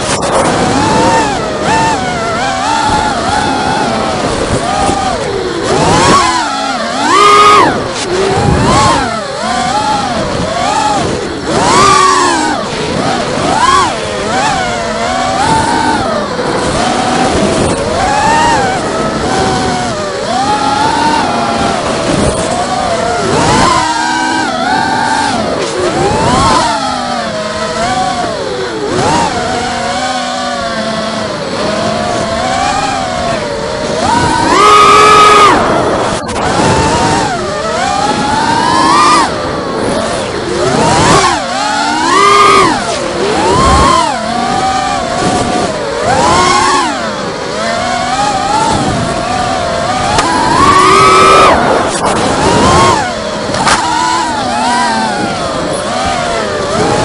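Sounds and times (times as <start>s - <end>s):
quadcopter motors whining: 0.0s - 57.0s.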